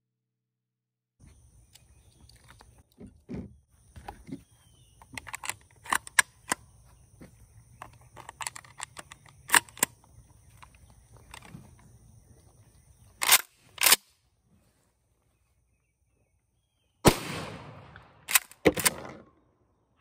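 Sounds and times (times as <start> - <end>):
shotgun shells clicking into magazine: 5.0 - 6.6, 7.8 - 10.0, 13.2 - 14.0.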